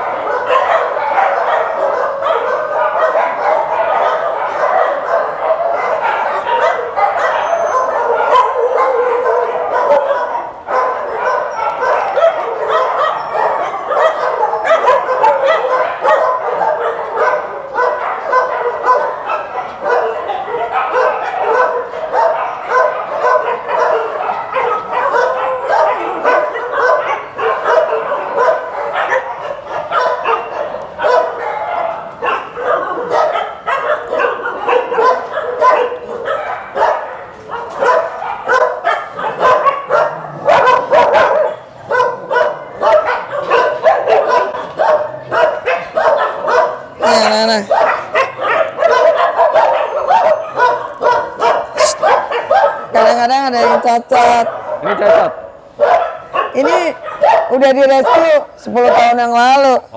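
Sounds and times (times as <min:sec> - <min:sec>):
many dogs barking and yipping: 0:00.0 - 0:59.9.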